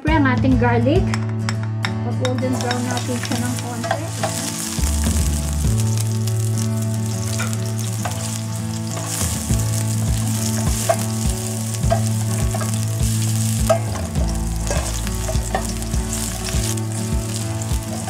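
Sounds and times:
spoon scraping and tapping pan: 0:02.3 - 0:04.9, 0:07.3 - 0:08.4, 0:10.4 - 0:12.8, 0:13.6 - 0:16.7
garlic sizzling in oil: 0:02.5 - 0:18.0.

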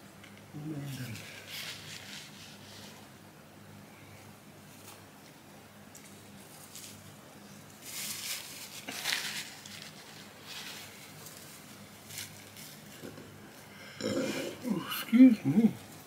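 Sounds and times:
faint room hum: 0:00.0 - 0:16.0
paper wrappers rustling: 0:00.8 - 0:03.0, 0:04.7 - 0:13.1.

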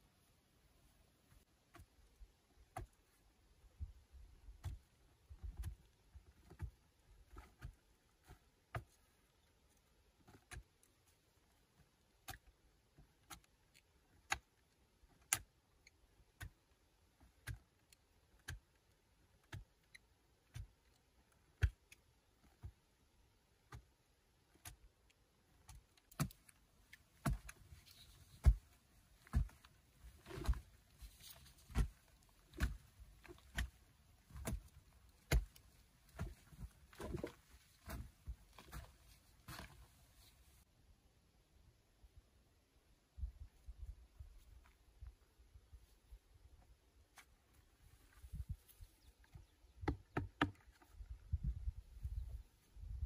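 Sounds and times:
digging tool chopping earth: 0:27.2 - 0:38.1.

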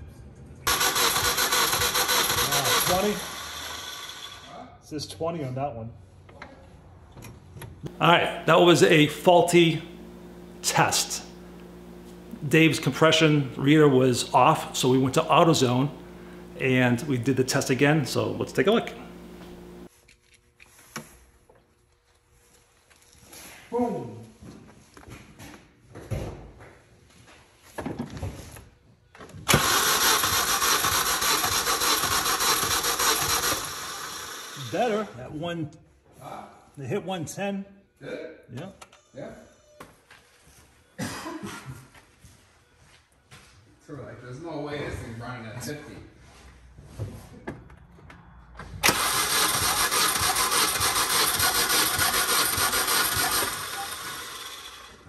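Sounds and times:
engine cranking on starter: 0:00.7 - 0:04.5, 0:29.5 - 0:34.8, 0:48.8 - 0:55.0.

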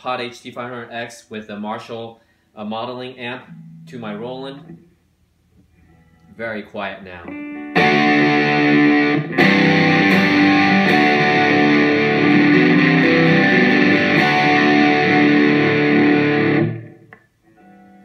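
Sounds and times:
soft guitar notes ringing: 0:03.2 - 0:05.0, 0:05.7 - 0:18.0
electric guitar playing: 0:03.3 - 0:05.0, 0:07.2 - 0:18.0.

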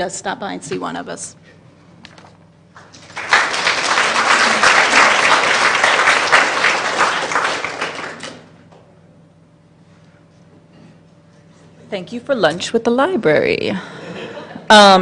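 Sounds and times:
audience applauding: 0:02.8 - 0:08.6.

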